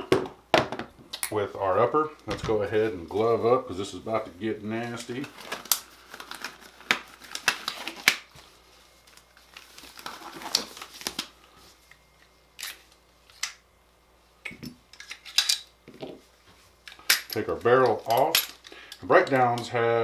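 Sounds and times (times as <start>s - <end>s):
disposable gloves rustling: 1.5s - 13.4s.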